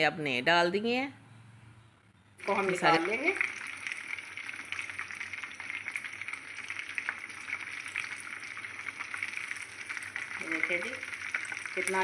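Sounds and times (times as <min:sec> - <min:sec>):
hot oil sizzling and crackling: 0:02.4 - 0:12.0.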